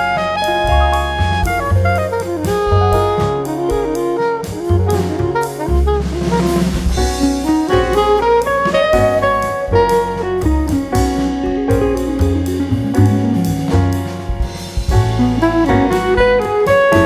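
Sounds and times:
jazzy instrumental music: 0.0 - 17.0.

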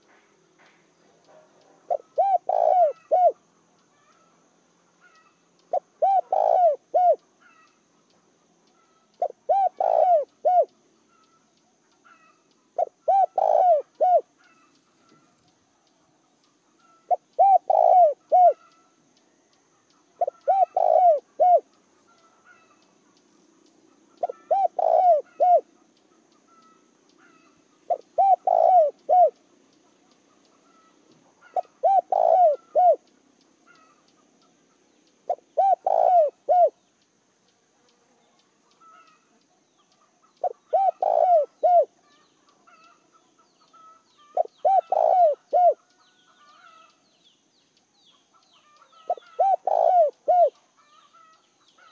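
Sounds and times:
dove cooing: 1.3 - 3.5, 5.0 - 7.6, 9.2 - 10.7, 12.1 - 15.3, 16.8 - 18.8, 20.2 - 22.8, 24.2 - 25.8, 26.5 - 29.4, 30.6 - 33.0, 35.3 - 36.8, 40.4 - 43.0, 43.7 - 46.9, 48.8 - 51.3.

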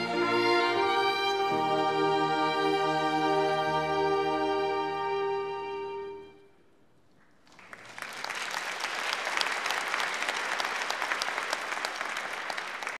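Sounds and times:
congregation applauding: 7.2 - 13.0.

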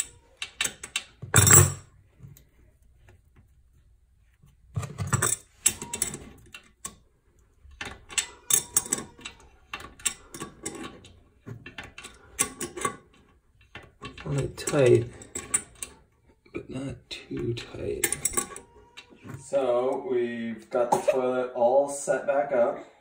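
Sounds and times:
wrench metal clicks and scrapes: 0.0 - 1.8, 7.6 - 16.0, 17.5 - 19.1.

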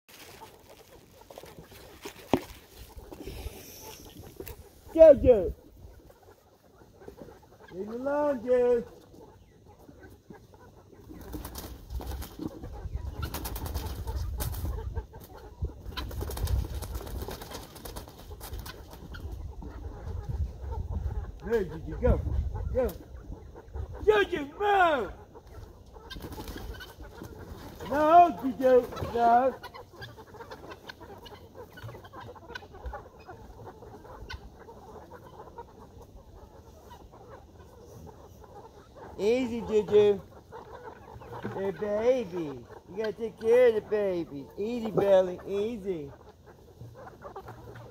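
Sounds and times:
chickens cooing: 0.1 - 47.9
wings flapping: 11.0 - 19.4, 25.4 - 33.0.

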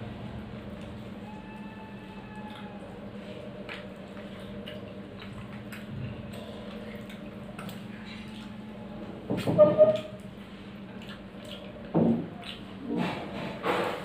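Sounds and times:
steady low hum: 0.0 - 14.0
chewing clicks: 2.4 - 2.9, 3.6 - 8.5, 10.9 - 12.7.

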